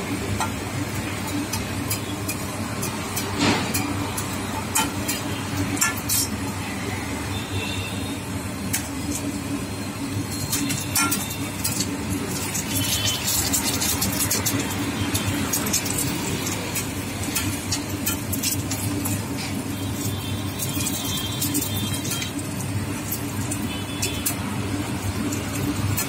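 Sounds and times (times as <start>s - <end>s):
street background rumble: 0.0s - 26.0s
metal utensils clinking on griddle: 0.1s - 6.4s, 10.3s - 26.0s.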